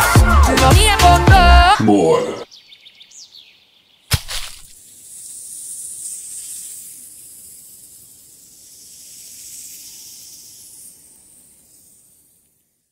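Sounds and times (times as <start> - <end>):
high airy hiss: 4.7 - 12.9.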